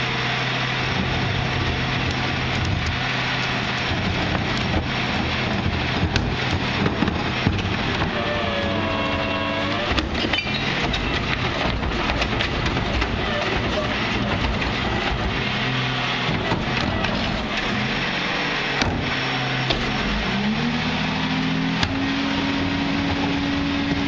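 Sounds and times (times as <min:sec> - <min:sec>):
diesel engine running: 0:00.0 - 0:24.0
hydraulic whine: 0:00.0 - 0:24.0
bin clanks and bangs: 0:09.8 - 0:15.5.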